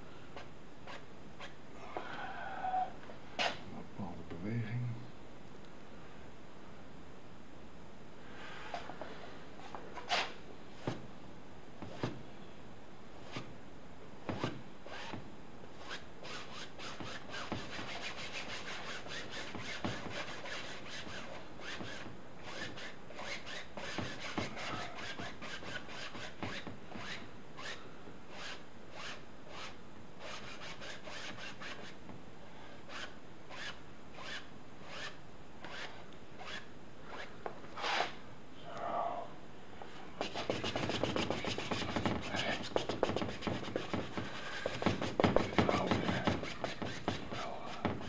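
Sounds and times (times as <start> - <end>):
paintbrush scrubbing on canvas: 15.8 - 32.0, 40.2 - 48.0.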